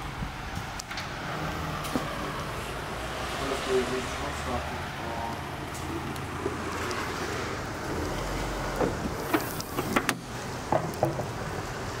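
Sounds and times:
sharp clicks and knocks: 8.8 - 11.3.

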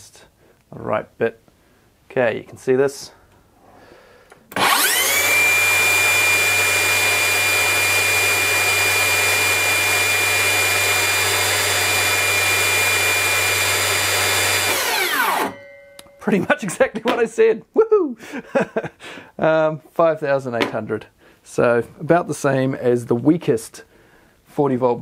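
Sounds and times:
circular saw whining: 4.5 - 15.6.

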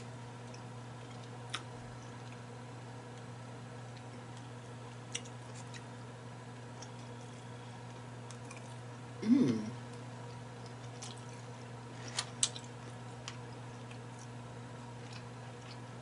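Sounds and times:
steady low hum: 0.0 - 16.0
person humming mmm: 9.2 - 9.8.

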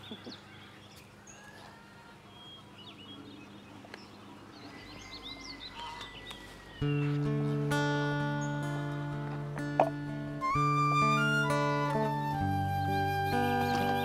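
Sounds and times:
small birds chirping: 0.0 - 9.1
plucked guitar music: 6.8 - 14.0.

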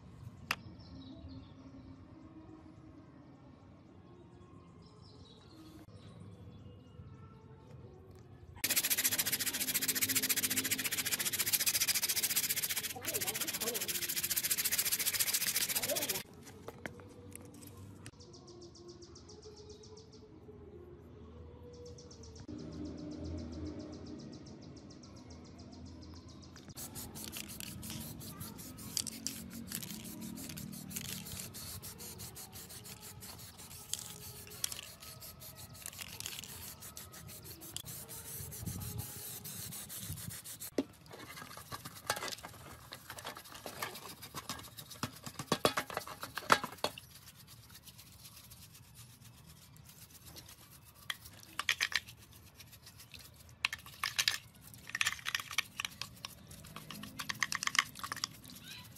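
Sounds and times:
brush scrubbing metal in water: 8.6 - 16.2, 26.8 - 58.9
rubbing and scraping on metal: 8.6 - 16.2, 26.8 - 58.9.

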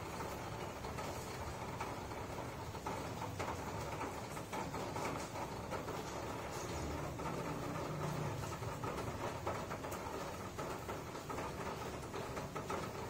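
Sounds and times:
low engine-like rumble: 6.4 - 9.4.

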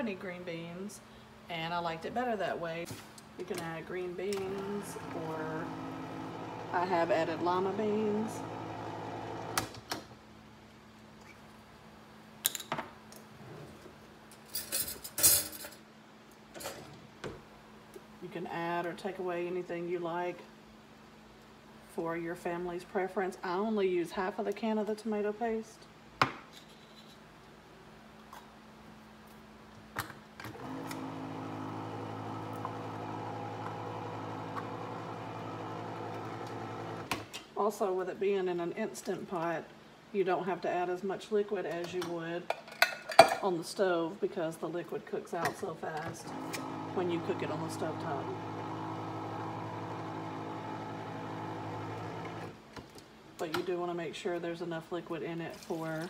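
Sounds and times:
electric can opener motor: 4.3 - 9.7, 30.5 - 37.2, 46.2 - 52.6.

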